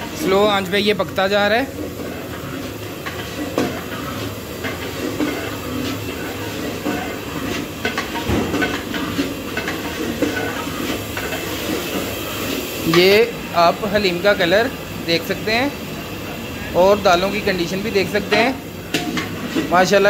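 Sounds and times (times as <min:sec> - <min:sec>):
gas burner rushing: 0:00.0 - 0:20.0
metal ladle scraping a pot: 0:01.7 - 0:12.9.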